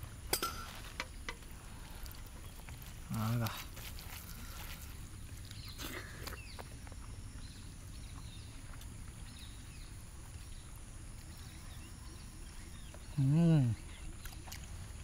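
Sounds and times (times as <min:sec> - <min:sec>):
faint bird chirps: 0:04.2 - 0:14.5.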